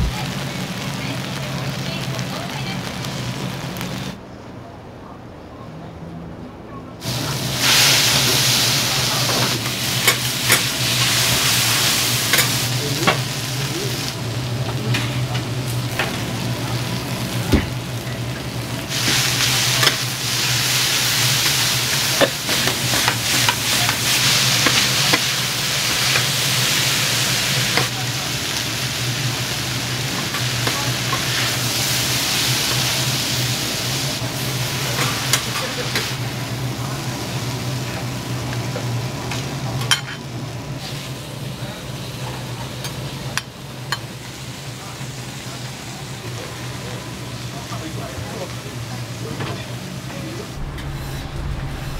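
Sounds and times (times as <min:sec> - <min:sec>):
food sizzling on griddle: 0:00.0 - 0:04.2, 0:07.0 - 0:51.9
low hum: 0:50.5 - 0:51.9.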